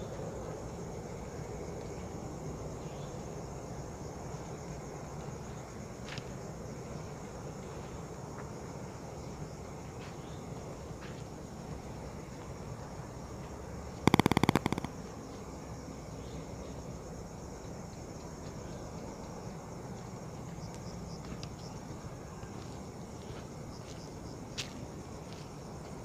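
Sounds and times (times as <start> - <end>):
insect chirping: 0.0 - 22.4
rattle of rapid clicks: 14.1 - 14.9.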